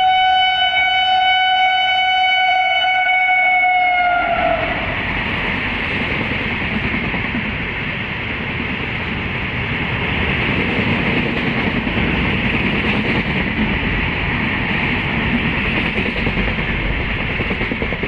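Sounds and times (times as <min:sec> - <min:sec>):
train wheels rolling on track: 0:03.7 - 0:18.0.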